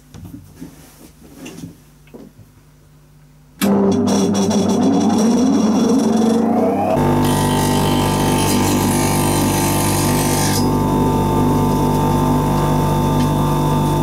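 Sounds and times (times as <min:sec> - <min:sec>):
bench grinder motor hum: 0:03.7 - 0:14.0.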